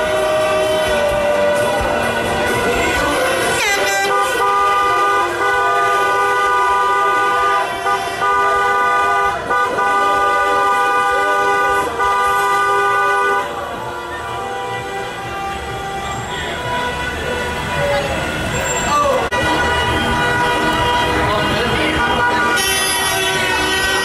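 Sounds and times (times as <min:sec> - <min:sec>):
car horn blasts: 0:00.0 - 0:24.0.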